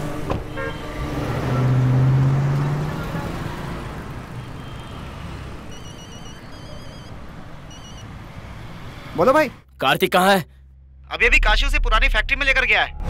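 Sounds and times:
car engine pulling away: 0:00.0 - 0:09.2
phone ringtone beeps: 0:05.7 - 0:08.1.

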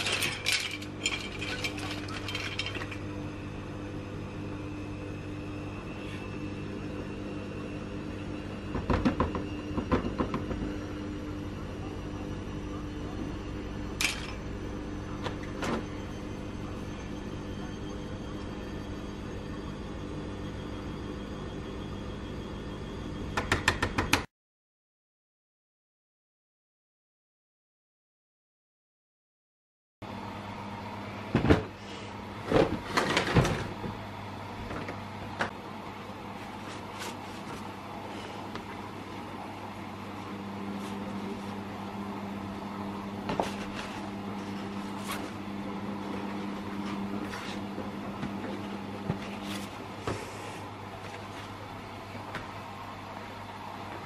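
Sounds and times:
low electrical hum: 0:00.0 - 0:23.4, 0:30.1 - 0:54.0
steady hum with faint tones: 0:00.0 - 0:24.0.

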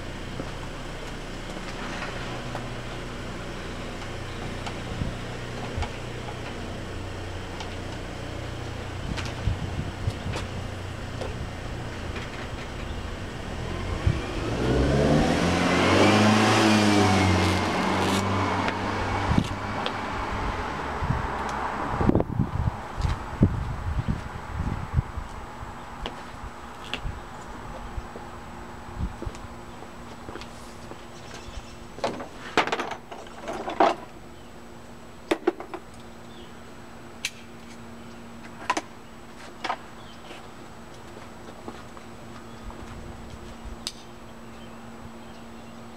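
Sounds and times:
car engine passing by: 0:13.3 - 0:23.4
knife scraping and creaking: 0:17.4 - 0:18.3.

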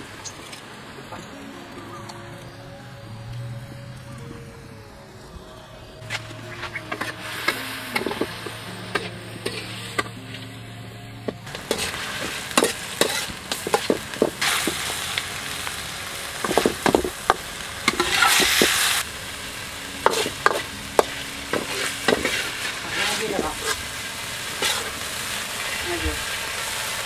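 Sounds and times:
meat sizzling in a wok: 0:06.0 - 0:10.4, 0:11.4 - 0:27.0
metal ladle scraping a pan: 0:06.0 - 0:10.4, 0:11.2 - 0:14.8, 0:17.9 - 0:19.0, 0:20.0 - 0:25.2.

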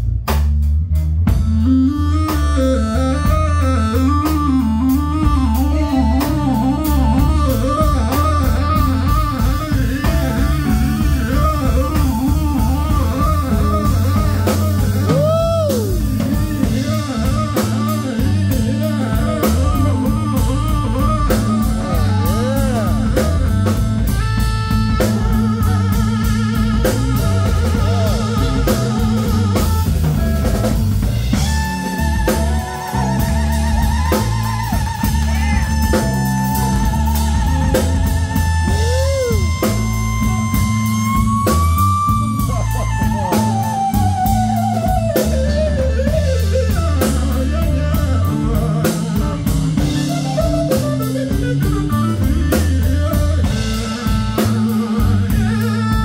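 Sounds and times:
live blues band playing: 0:00.0 - 0:56.0
electric guitar bent notes: 0:00.8 - 0:56.0.

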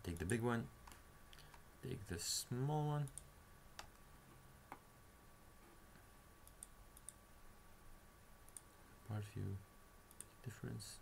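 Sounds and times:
faint computer mouse clicks: 0:06.4 - 0:07.2, 0:08.5 - 0:08.7, 0:10.1 - 0:10.4.

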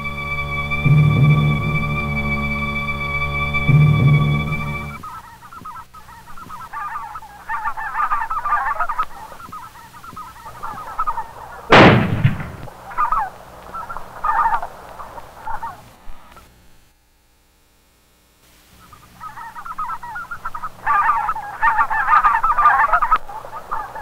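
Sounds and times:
geese honking: 0:00.0 - 0:16.5, 0:18.8 - 0:24.0
shotgun blast: 0:11.7 - 0:12.7.

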